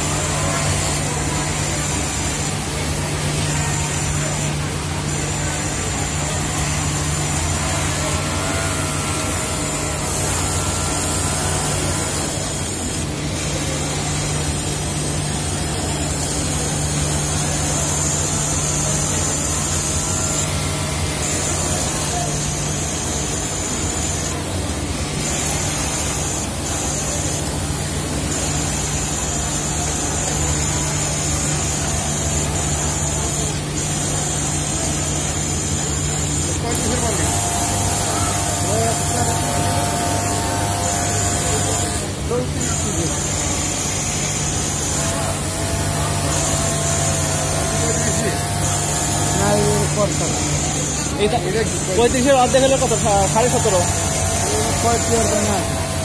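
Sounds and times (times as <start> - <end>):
industrial sewing machines: 0.0 - 56.0.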